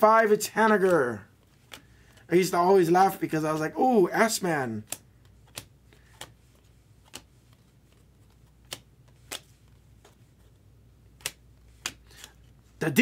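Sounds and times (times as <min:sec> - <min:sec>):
cards clicking and snapping: 0:00.8 - 0:02.3, 0:04.8 - 0:12.6.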